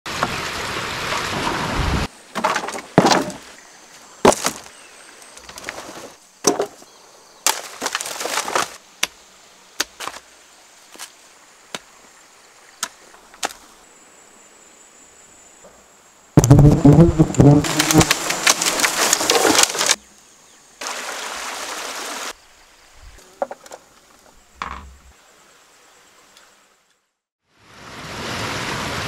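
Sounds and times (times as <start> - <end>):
rushing stream water: 0.1 - 2.4, 20.7 - 23.2, 25.1 - 29.0
bamboo and wood cracking: 2.3 - 3.5, 4.2 - 9.2, 9.8 - 10.3, 12.8 - 13.6, 16.4 - 20.0.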